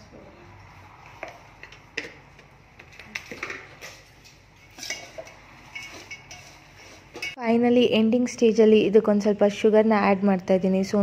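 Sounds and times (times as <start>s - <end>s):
spatula scraping metal pot: 4.6s - 7.4s.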